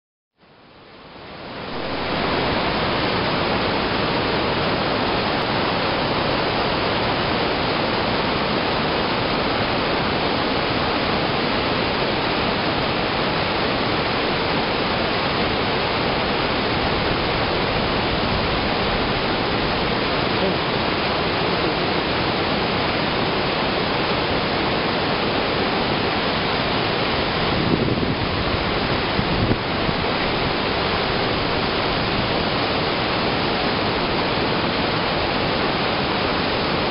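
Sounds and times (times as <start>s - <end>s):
river rushing over boulders: 0.4s - 36.9s.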